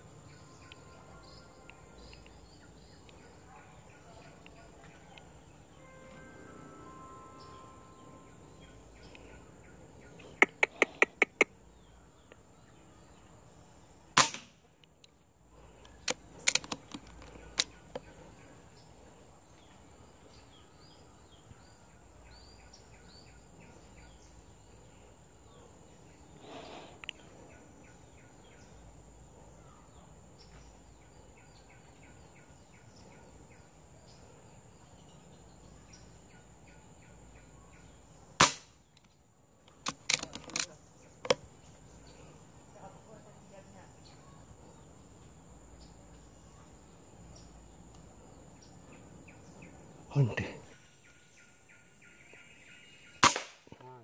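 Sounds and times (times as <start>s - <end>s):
faint bird chirps: 0.0s - 14.2s, 15.0s - 54.0s
air rifle cracks: 14.2s - 14.6s, 15.9s - 17.8s, 38.4s - 39.1s, 39.7s - 41.4s, 53.2s - 53.8s.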